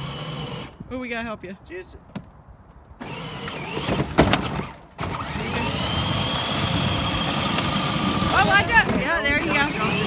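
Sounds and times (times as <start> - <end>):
toy truck electric motor whine: 0.0 - 0.8, 3.0 - 10.0.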